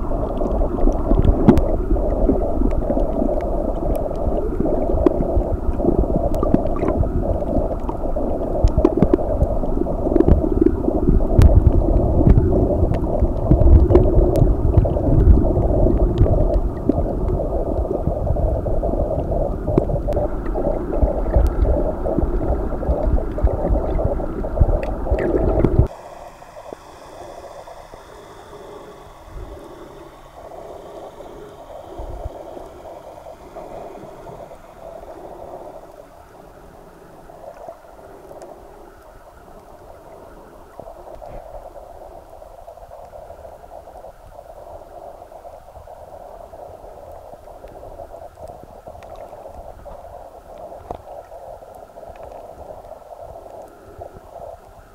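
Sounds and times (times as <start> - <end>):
muffled underwater rumble: 0.0 - 54.9
quiet underwater hiss: 0.0 - 54.9
sharp underwater clicks: 0.2 - 18.1, 19.2 - 25.9.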